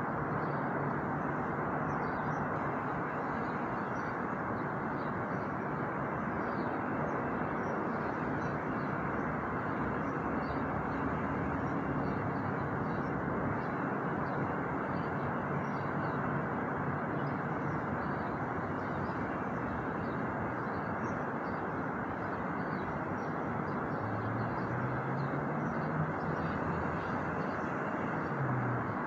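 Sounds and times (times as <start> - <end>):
outdoor ambient noise: 0.0 - 29.0.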